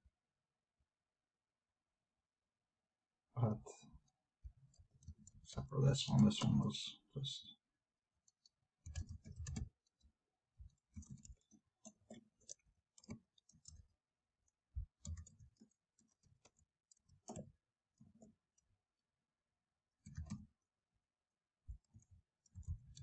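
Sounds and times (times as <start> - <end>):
faint keyboard typing: 3.8 - 7.3, 8.2 - 18.8, 20.0 - 20.6, 21.7 - 23.0.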